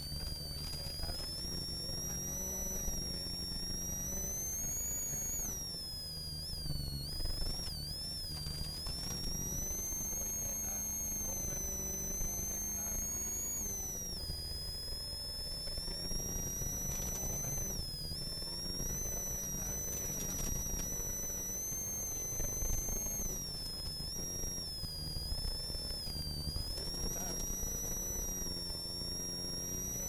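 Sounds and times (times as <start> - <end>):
turbo whistle: 0.0 - 30.0
car engine pulling hard: 14.5 - 30.0.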